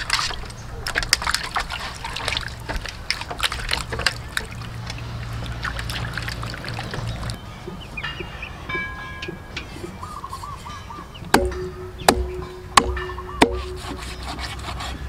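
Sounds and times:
hands scrubbing meat: 0:00.0 - 0:07.8
water splashing in metal basin: 0:00.0 - 0:10.4, 0:11.0 - 0:14.0.

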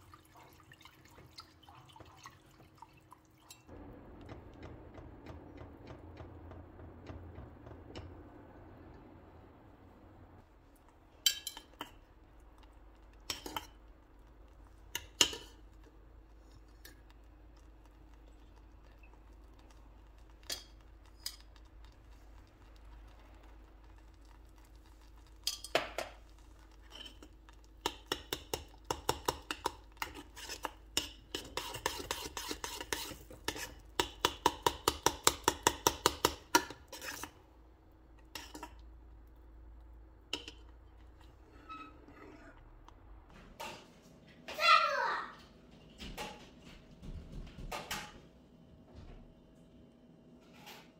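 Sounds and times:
metal spoon clinking on saucepan: 0:11.2 - 0:12.0, 0:25.4 - 0:26.0.

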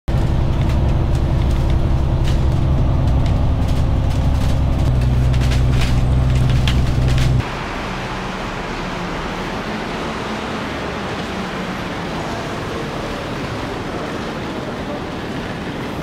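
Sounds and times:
bus engine droning: 0:00.0 - 0:16.0
interior rattles: 0:00.1 - 0:07.4.

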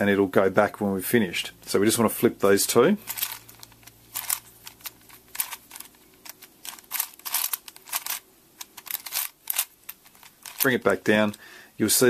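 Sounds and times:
puzzle cube clicking rattle: 0:03.0 - 0:11.4.

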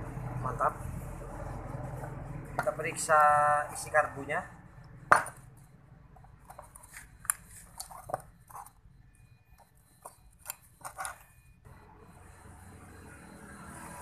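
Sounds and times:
screwdriver metallic clicks and scrapes: 0:06.4 - 0:08.8, 0:09.6 - 0:11.3.

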